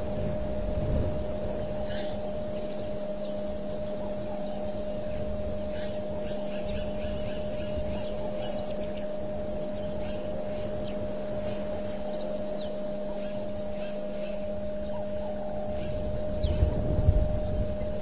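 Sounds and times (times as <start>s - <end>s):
electrical hum: 0.0s - 18.0s
small birds chirping: 1.4s - 18.0s.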